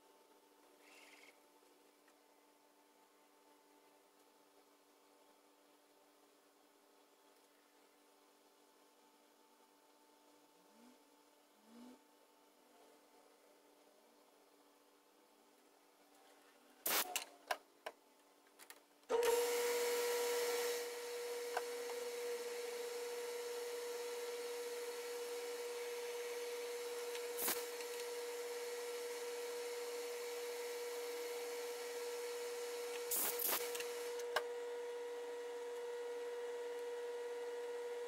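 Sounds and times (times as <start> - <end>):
lathe whining: 19.1 - 38.0.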